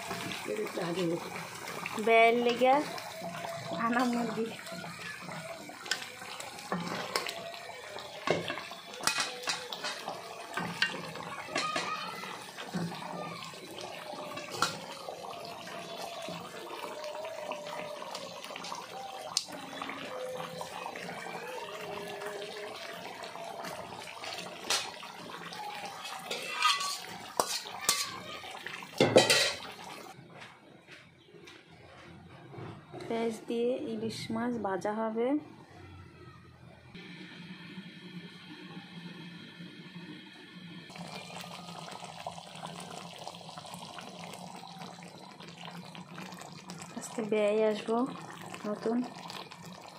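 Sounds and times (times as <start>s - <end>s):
simmering pan hiss: 0.0s - 30.2s, 37.0s - 49.9s
spatula scraping metal pot: 26.2s - 28.3s.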